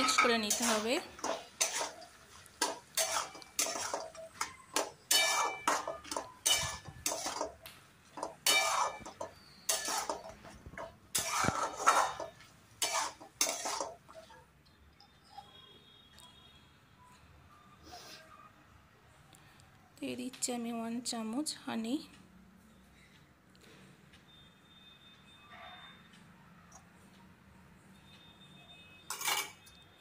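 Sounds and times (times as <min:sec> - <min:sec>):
metal spatula scraping a pan: 0:00.0 - 0:07.6, 0:08.2 - 0:14.4, 0:29.1 - 0:29.7.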